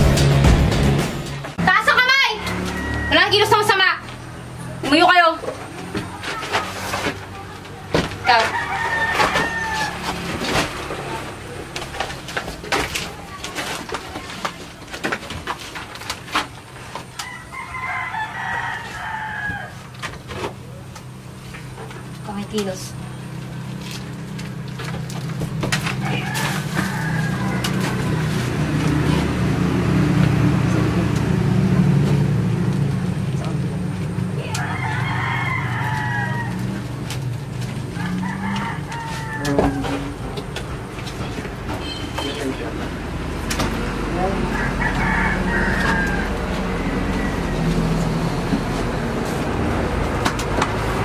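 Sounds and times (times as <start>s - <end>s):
rooster crowing: 2.4s - 3.8s, 8.2s - 10.6s, 17.1s - 20.0s, 25.8s - 28.8s, 34.4s - 40.4s, 44.3s - 49.0s.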